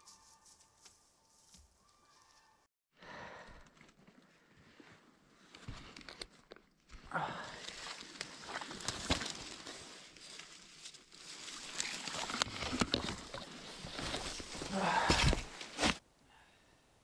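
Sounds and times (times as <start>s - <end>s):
branches rustling and crackling: 5.4s - 16.0s
twigs snapping: 7.6s - 16.0s.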